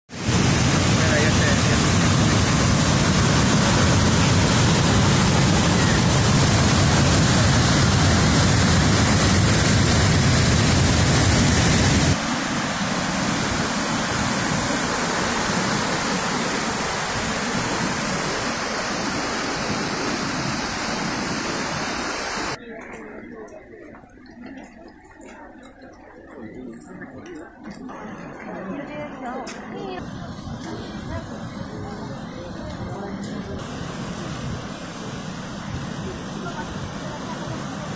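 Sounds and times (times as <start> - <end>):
river rapids rushing: 0.2 - 22.6.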